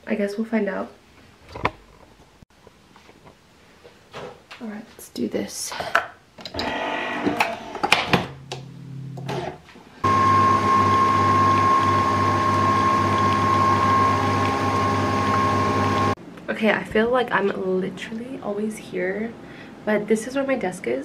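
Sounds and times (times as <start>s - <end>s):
coffee machine motor humming: 10.0s - 16.2s.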